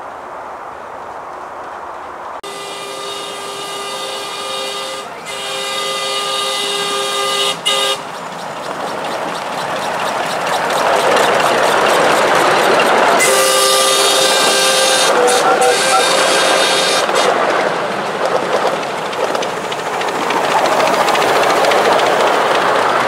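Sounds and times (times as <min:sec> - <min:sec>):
steam whistle blasts: 0:02.4 - 0:08.1, 0:13.2 - 0:17.3
steam locomotive hissing and chuffing: 0:02.4 - 0:23.0.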